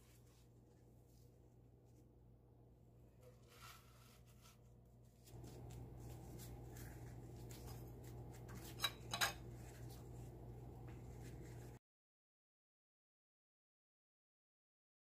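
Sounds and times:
steady low hum: 0.0s - 11.8s
faint rubbing: 3.2s - 8.9s
fork clinking on ceramic plate: 8.7s - 9.5s.

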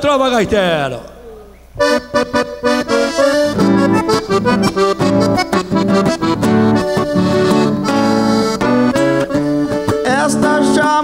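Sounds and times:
accordion playing lively melody: 1.8s - 11.0s.

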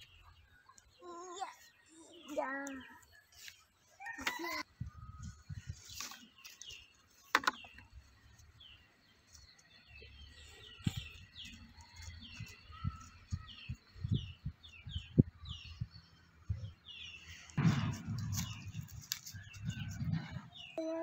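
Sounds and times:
small birds chirping: 0.0s - 21.0s
sharp loud sound: 17.6s - 18.9s
low thuds: 17.6s - 20.5s.

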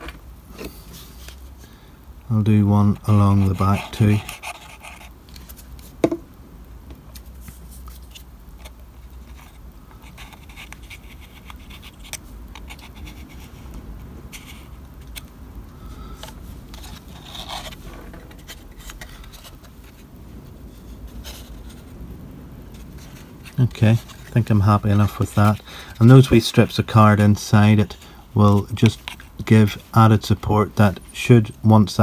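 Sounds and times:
low steady hum: 0.0s - 32.0s
card scratching against skin: 3.1s - 5.6s, 9.1s - 13.7s, 16.2s - 20.0s, 22.8s - 26.4s.

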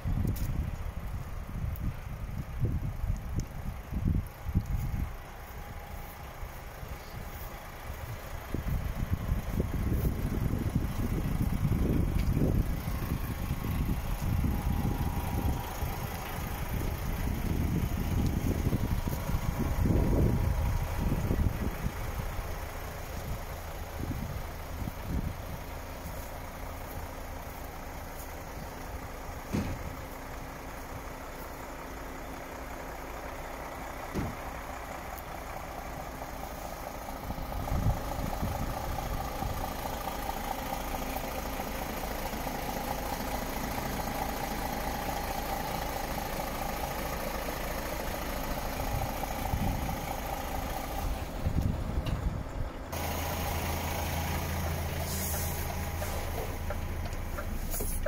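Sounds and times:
diesel truck engine idling: 0.0s - 58.0s
engine knocks: 0.1s - 58.0s.

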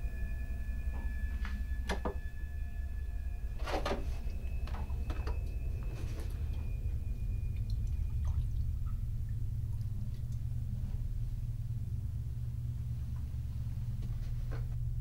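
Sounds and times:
steady low hum: 0.0s - 15.0s
faint drips: 4.7s - 11.2s.

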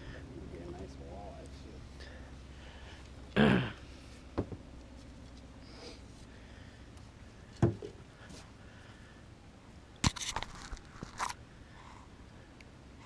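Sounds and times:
person grunting: 3.4s - 3.8s.

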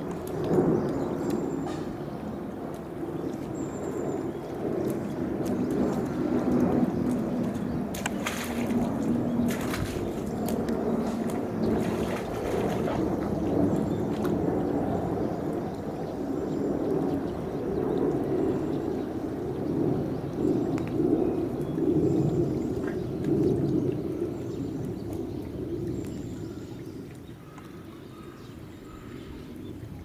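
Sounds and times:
water splashes: 0.0s - 30.0s
rhinoceros drinking water: 2.6s - 16.2s.

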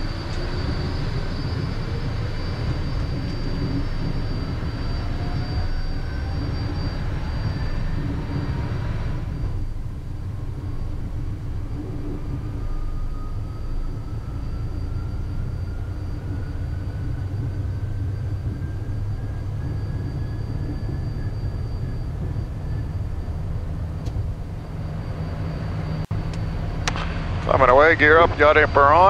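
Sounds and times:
faint rising whine: 0.0s - 29.0s
jet engines low rumble: 0.0s - 29.0s.

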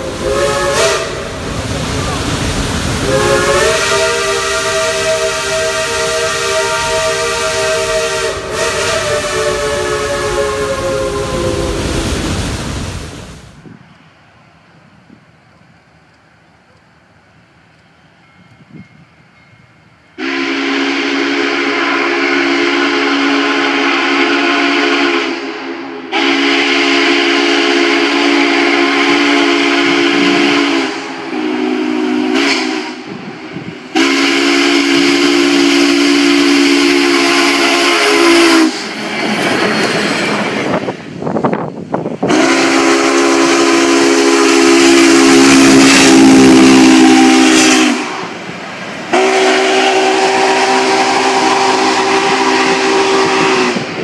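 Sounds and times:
steam whistle blasts: 0.0s - 2.3s, 3.0s - 12.3s, 20.2s - 39.0s, 42.2s - 48.4s, 49.1s - 54.0s
rush of steam: 0.0s - 15.7s, 20.2s - 54.0s
passing locomotive running noise: 0.0s - 54.0s.

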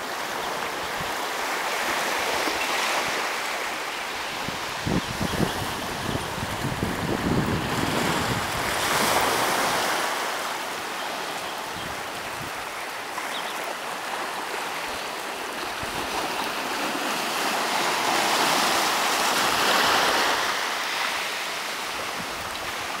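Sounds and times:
sea waves breaking on shore: 0.0s - 23.0s
wind rumble on microphone: 4.3s - 9.8s.

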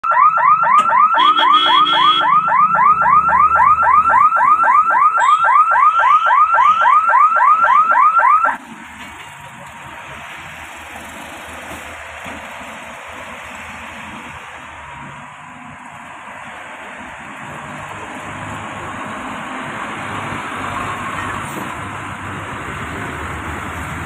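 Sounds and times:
level crossing warning siren: 0.0s - 8.6s.

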